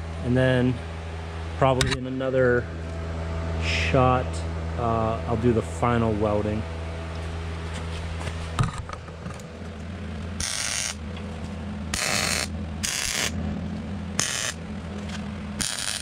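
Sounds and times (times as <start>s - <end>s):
welder low hum: 0.0s - 16.0s
welding arc crackling: 10.4s - 11.0s, 11.9s - 13.4s, 14.2s - 14.6s, 15.6s - 16.0s.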